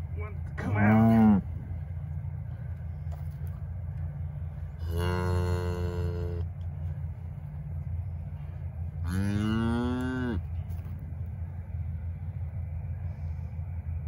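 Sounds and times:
steady low rumble: 0.0 - 14.0
cattle mooing: 4.8 - 6.4, 9.0 - 10.5.

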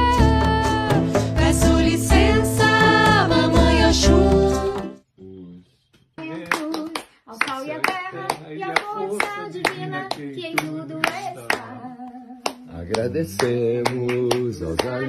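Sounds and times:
voices singing: 0.0 - 5.0, 7.6 - 15.0
hands clapping along: 6.3 - 15.0.

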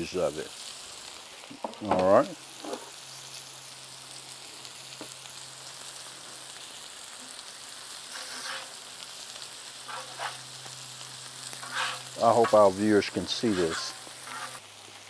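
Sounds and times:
food sizzling on a griddle: 0.0 - 15.0
metal spatula scraping griddle: 8.1 - 8.8, 9.8 - 10.5, 11.5 - 14.7.

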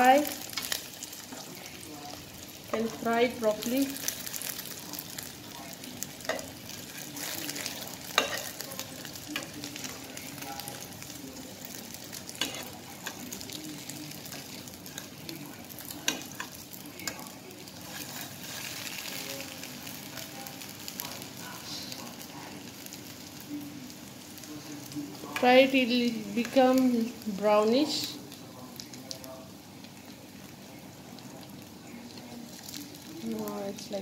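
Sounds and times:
sausages sizzling in pan: 0.0 - 34.0
metal tongs clicking on pan: 8.2 - 8.6.

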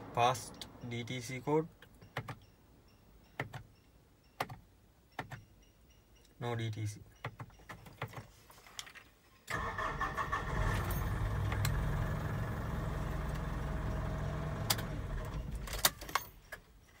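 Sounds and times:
diesel engine starting and idling: 9.5 - 16.0.

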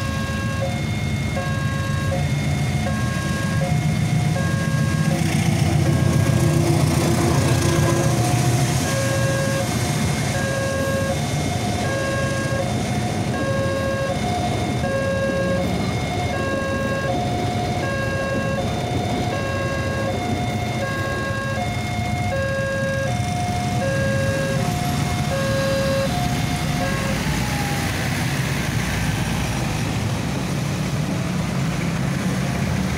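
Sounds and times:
passing train rumble: 0.0 - 32.9
level crossing alarm chime: 25.3 - 26.2.

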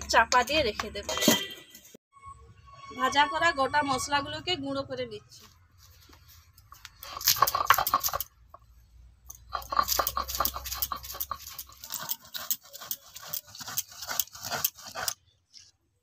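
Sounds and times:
stone roller grinding spices: 7.0 - 8.3, 9.3 - 15.8.

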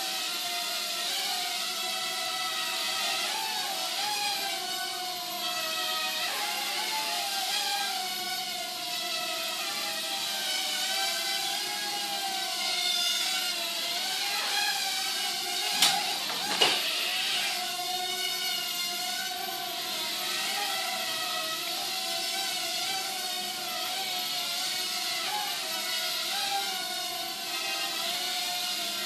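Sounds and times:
quadcopter motors whining: 0.0 - 29.0
quadcopter bumping knocks: 14.2 - 17.9.

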